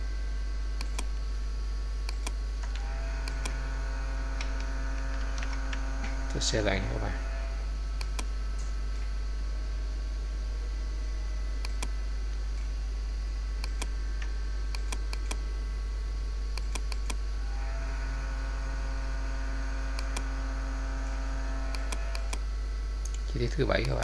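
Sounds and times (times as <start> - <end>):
low electrical hum: 0.0 - 24.0
multi-tone hum: 0.0 - 24.0
computer mouse clicks: 0.8 - 1.1, 2.1 - 3.6, 8.0 - 8.3, 11.6 - 11.9, 13.6 - 13.9, 14.7 - 15.4, 16.6 - 17.2, 20.0 - 20.3, 21.7 - 22.4.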